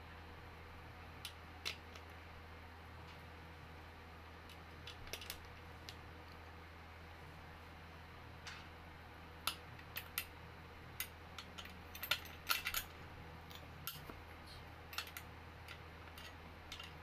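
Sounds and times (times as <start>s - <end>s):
metal parts clicking: 11.0s - 12.9s, 14.9s - 17.0s.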